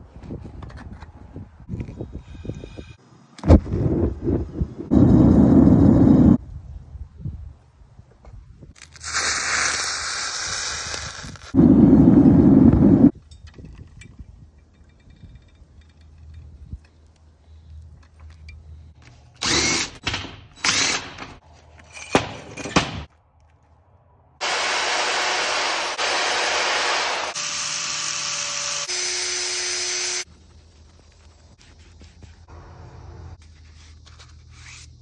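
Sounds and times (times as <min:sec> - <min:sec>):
power tool motor running: 0:24.4 - 0:30.3.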